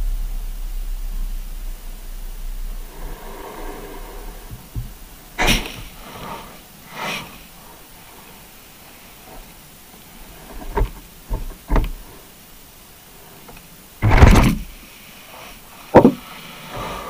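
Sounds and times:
loud thump: 0:00.0 - 0:06.0, 0:14.0 - 0:14.7
dull knocks: 0:04.4 - 0:05.9, 0:10.6 - 0:12.1, 0:15.9 - 0:16.2.

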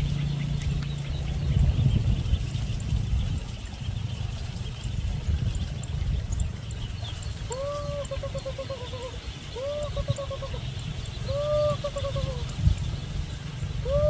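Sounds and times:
steady low rumble: 0:00.0 - 0:14.0
quavering animal call: 0:07.4 - 0:12.6, 0:13.8 - 0:14.0.

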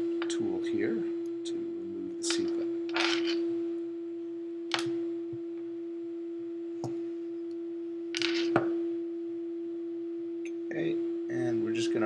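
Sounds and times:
constant hum: 0:00.0 - 0:12.0.

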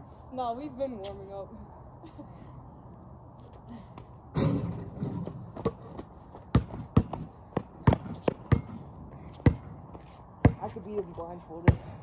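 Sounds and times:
basketball hitting hoop: 0:04.4 - 0:08.8
basketball dribbled on concrete: 0:05.4 - 0:12.0.

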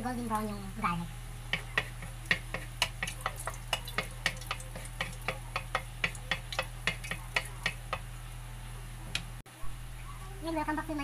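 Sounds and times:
garlic frying in oil: 0:00.0 - 0:08.5.

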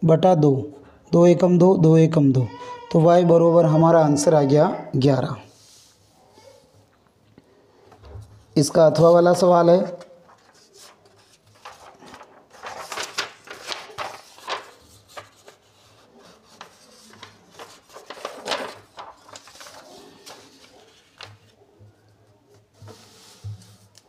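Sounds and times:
paper rustling and scraping: 0:08.2 - 0:21.6, 0:22.6 - 0:24.0.

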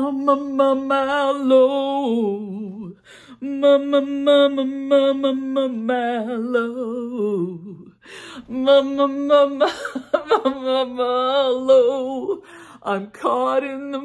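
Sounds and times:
woman singing a cappella: 0:00.0 - 0:14.0.

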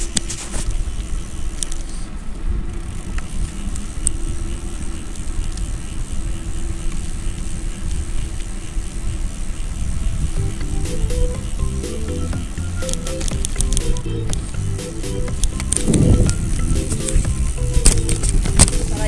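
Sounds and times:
wind buffeting microphone: 0:07.4 - 0:12.7, 0:13.3 - 0:19.0.

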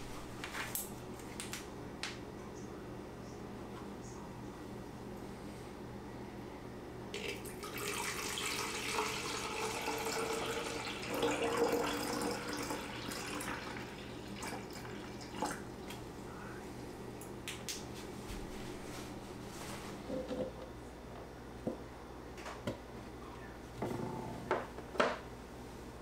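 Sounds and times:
liquid pouring into container: 0:07.2 - 0:15.6.

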